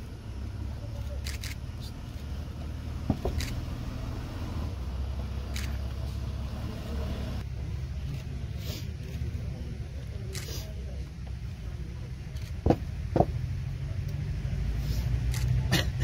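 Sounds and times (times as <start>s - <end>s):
vehicle engine rumbling: 0.0s - 16.0s.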